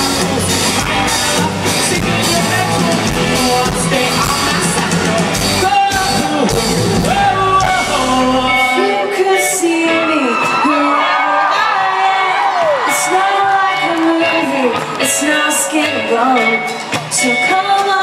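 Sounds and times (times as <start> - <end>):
live band playing: 0.0 - 18.0
people singing: 0.0 - 18.0.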